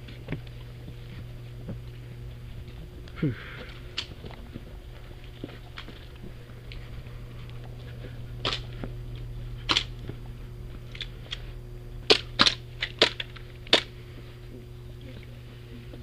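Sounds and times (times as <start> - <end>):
airsoft guns firing: 12.0 - 13.9.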